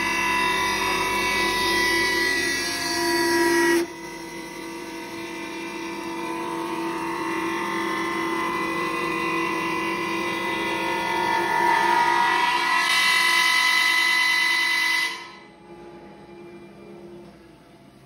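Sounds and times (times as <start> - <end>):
woodworking machine spindle whine: 0.0 - 18.0.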